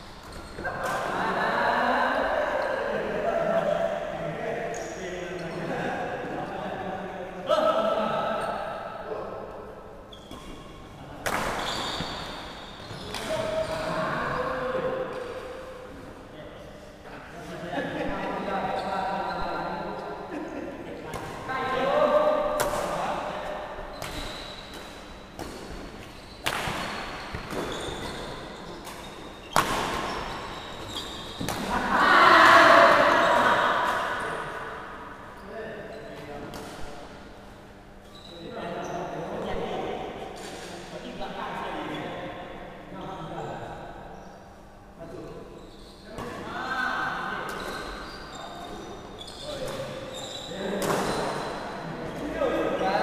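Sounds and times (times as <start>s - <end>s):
shoes squeaking on wooden floor: 11.6s - 13.9s, 26.0s - 31.4s
racket hitting shuttlecock: 24.0s - 30.5s.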